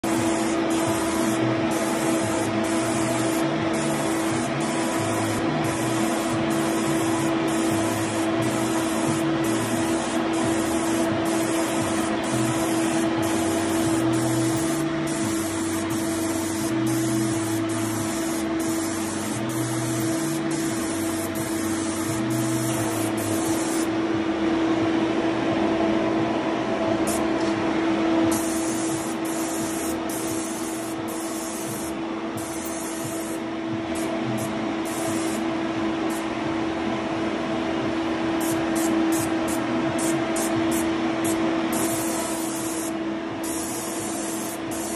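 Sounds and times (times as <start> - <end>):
paint spray hissing: 0.0 - 23.9, 28.3 - 33.4, 34.0 - 35.4, 38.4 - 44.9
machine hum: 0.0 - 44.9.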